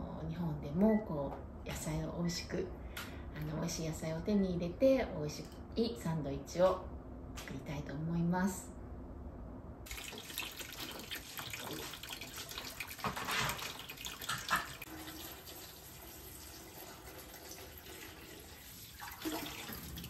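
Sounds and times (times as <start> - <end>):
tap water splashing on leaves: 9.9 - 14.9.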